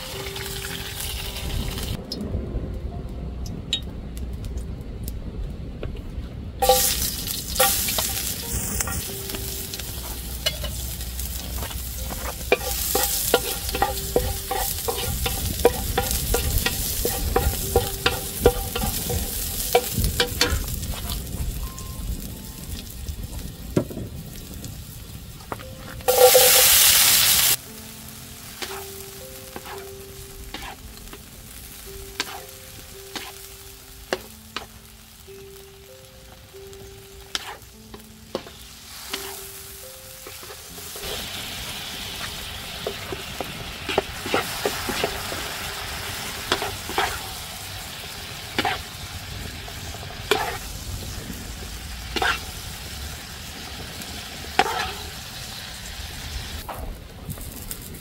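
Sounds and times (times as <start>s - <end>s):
vegetables sizzling in a wok: 0.0s - 2.0s, 6.6s - 58.0s
soft background melody: 0.0s - 5.7s, 6.6s - 56.0s
wooden spatula scraping a wok: 9.9s - 21.2s, 30.5s - 30.8s, 32.2s - 33.4s, 37.3s - 37.7s, 46.4s - 47.4s, 50.2s - 50.7s, 52.1s - 52.6s, 54.5s - 55.2s.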